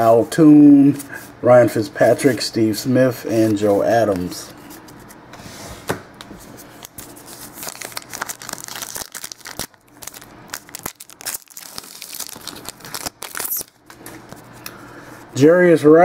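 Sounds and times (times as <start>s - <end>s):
wrapper crinkling and tearing: 6.8s - 13.9s.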